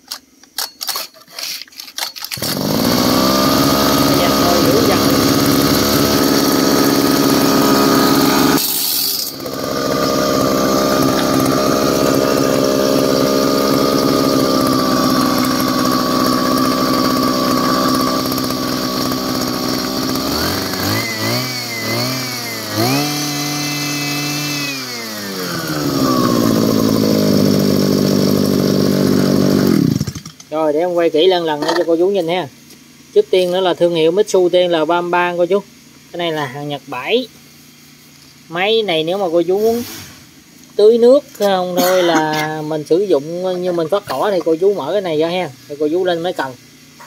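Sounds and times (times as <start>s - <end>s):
water pump engine revving: 2.3s - 32.4s, 40.8s - 47.0s.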